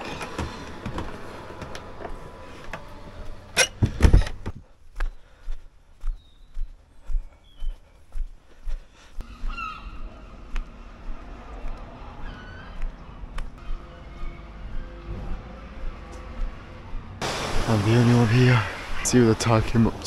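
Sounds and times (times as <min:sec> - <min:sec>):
footsteps on pavement: 0:04.6 - 0:09.6.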